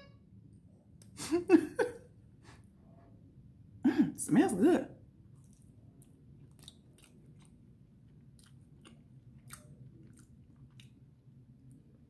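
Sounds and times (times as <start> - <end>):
low room hum: 0.0 - 12.0
chewing mouth clicks and smacks: 5.4 - 11.0.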